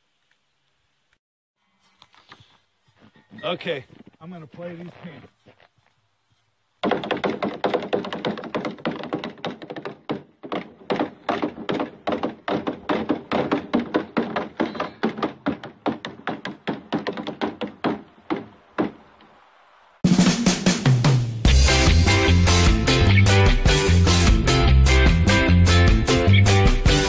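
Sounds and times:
hollow knocks on frozen pants: 6.8 - 19.0.

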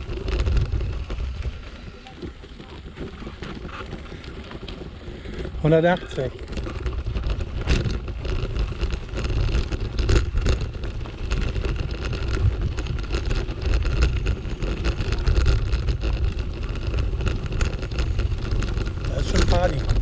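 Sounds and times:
bicycle tyres rumbling on gravel: 0.0 - 20.0
small clicks and rattles: 0.0 - 20.0
wind on microphone: 0.0 - 20.0.

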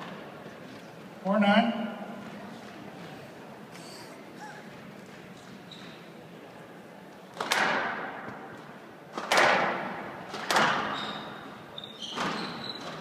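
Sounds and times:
squash ball smacks echoing: 7.4 - 8.5, 9.1 - 10.9.

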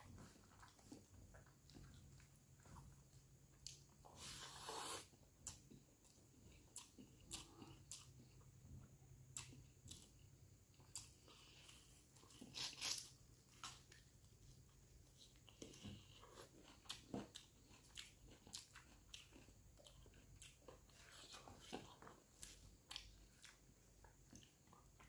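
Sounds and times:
person chewing: 0.1 - 25.0.

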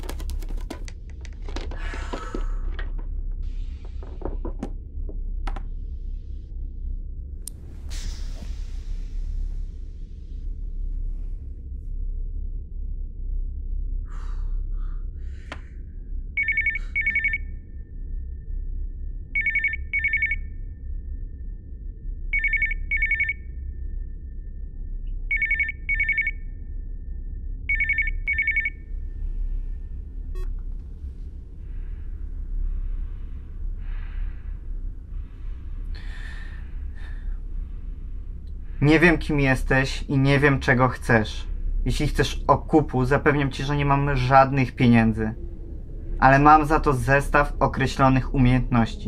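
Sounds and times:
low steady rumble: 0.0 - 49.0
electronic telephone ringing: 16.4 - 17.4, 19.4 - 20.4, 22.4 - 23.4, 25.3 - 26.4, 27.7 - 28.8.

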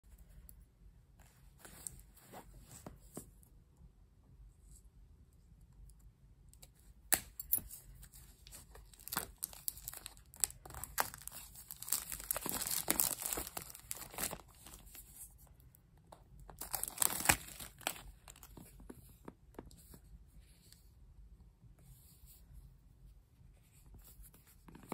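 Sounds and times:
plastic shrink wrap crinkling: 8.1 - 15.4, 16.5 - 18.8.

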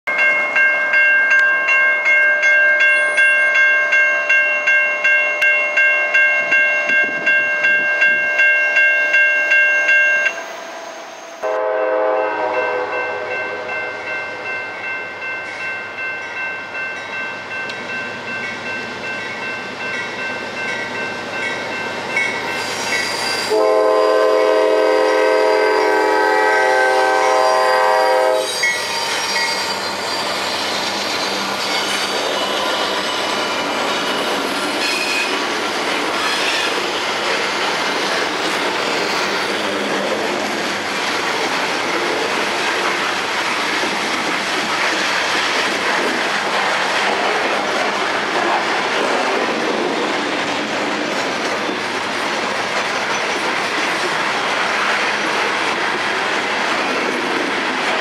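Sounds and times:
railroad crossing bell ringing: 0.1 - 35.5
locomotive air horn: 11.4 - 14.4, 23.3 - 28.8.

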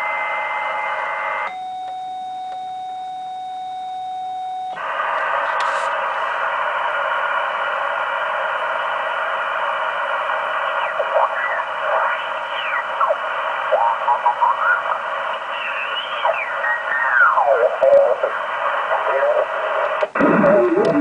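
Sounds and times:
shortwave receiver hiss: 4.8 - 21.0
garbled radio signals sliding in pitch: 15.5 - 18.3.

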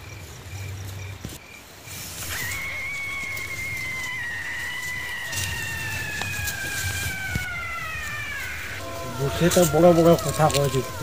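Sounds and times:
crickets chirping: 0.0 - 11.0
eerie high whistling tone: 2.2 - 11.0.

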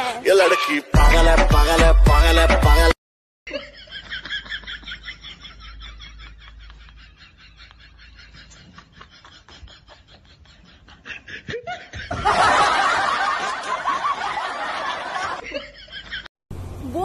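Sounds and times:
loud laughter: 3.5 - 16.3.

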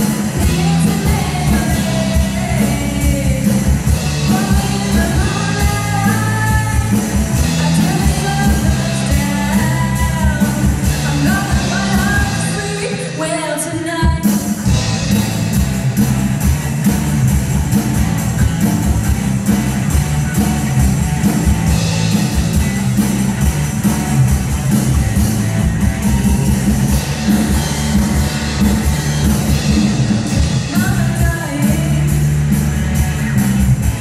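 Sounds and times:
person singing: 0.0 - 14.4, 30.5 - 32.3
drum kit: 0.0 - 34.0
electric guitar: 0.0 - 34.0.

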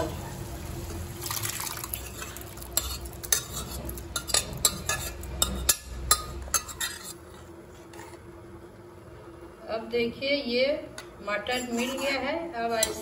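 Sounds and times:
metal spoon clinking on cookware: 1.9 - 7.2, 11.5 - 13.0.

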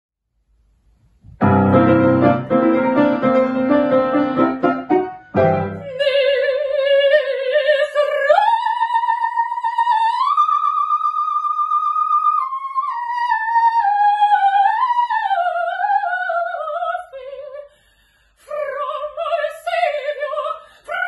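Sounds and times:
piano chords: 1.3 - 6.3
soprano singing opera: 5.7 - 17.7, 18.4 - 21.0.

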